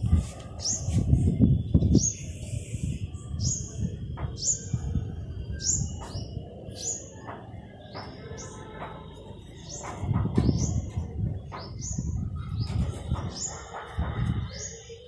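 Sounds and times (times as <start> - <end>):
bird chirping: 0.6 - 15.0.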